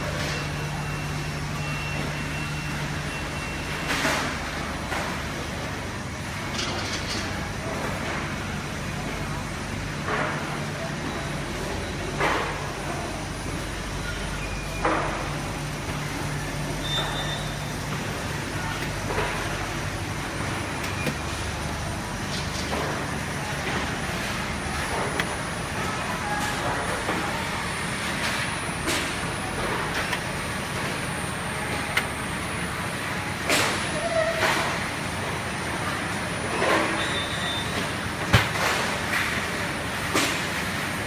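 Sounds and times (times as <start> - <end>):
oven mechanical hum: 0.0 - 41.0.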